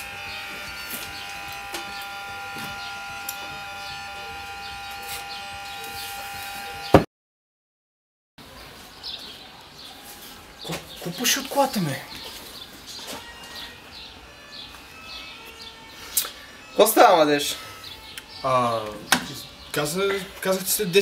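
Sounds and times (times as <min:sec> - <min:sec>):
electrical buzz: 0:00.0 - 0:07.1.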